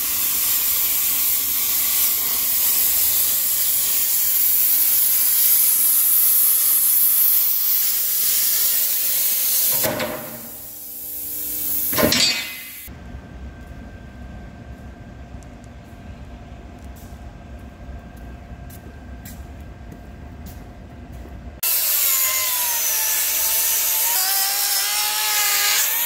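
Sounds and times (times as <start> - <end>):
cutting torch hissing: 0.0 - 12.9.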